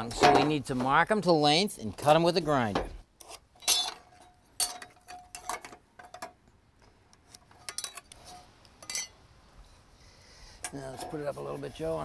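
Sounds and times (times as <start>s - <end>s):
metal square clinking on steel plate: 3.6s - 6.3s, 8.8s - 9.2s.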